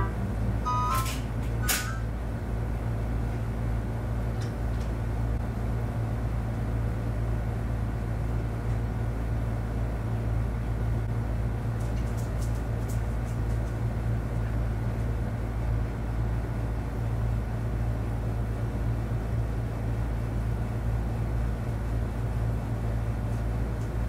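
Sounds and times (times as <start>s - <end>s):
brief ringing tone: 0.0s - 1.2s
ventilation hum: 0.0s - 24.0s.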